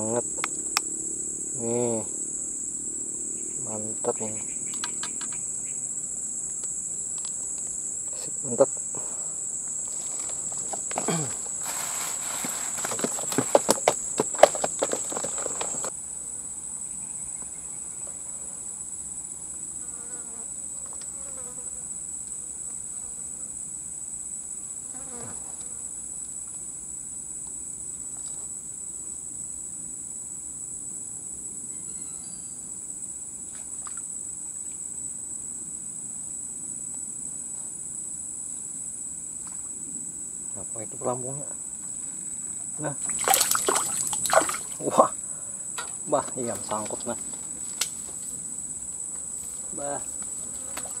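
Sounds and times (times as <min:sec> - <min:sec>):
high-pitched insect drone: 0:00.0 - 0:16.0, 0:31.5 - 0:35.2, 0:38.4 - 0:51.0
rustling: 0:09.8 - 0:15.9.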